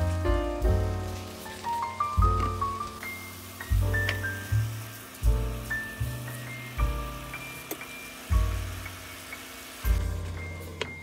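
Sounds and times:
deep bass notes: 0:00.0 - 0:01.1, 0:03.7 - 0:06.2, 0:09.9 - 0:10.8.

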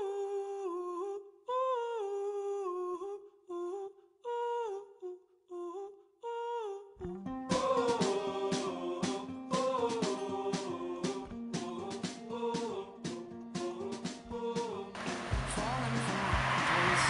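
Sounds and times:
person humming a wordless melody: 0:00.0 - 0:14.9
backing music: 0:07.5 - 0:17.0.

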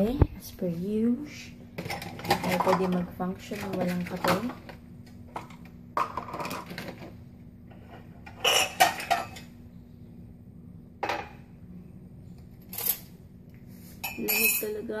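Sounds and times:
faint steady hum: 0:00.0 - 0:15.0
dishes and cutlery clinking: 0:07.7 - 0:09.5, 0:14.0 - 0:14.9.

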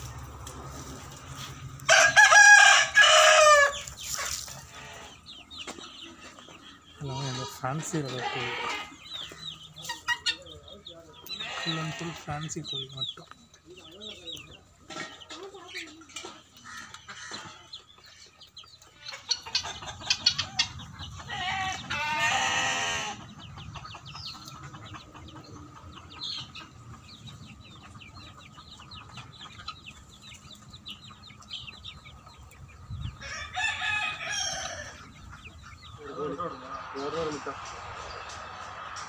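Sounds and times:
chickens clucking: 0:00.0 - 0:39.0
rooster crowing: 0:01.8 - 0:03.8, 0:33.2 - 0:35.1.

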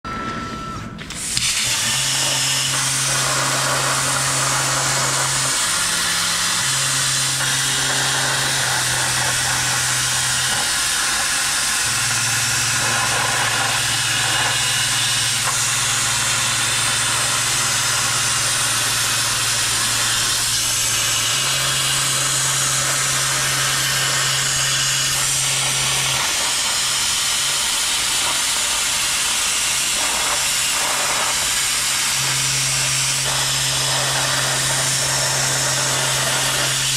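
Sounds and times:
gantry motors humming: 0:00.0 - 0:28.0
plasma torch hissing: 0:01.0 - 0:36.9.

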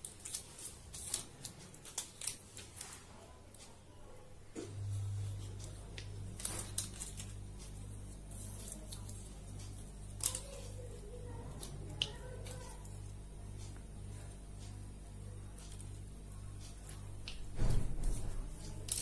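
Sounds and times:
paper rustling: 0:00.0 - 0:03.6, 0:04.7 - 0:12.9
low pulsing hum: 0:04.6 - 0:19.0.

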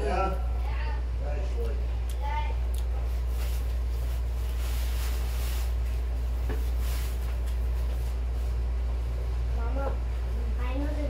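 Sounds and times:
steady low hum: 0:00.0 - 0:11.0
faint rustling of movement: 0:02.9 - 0:11.0.

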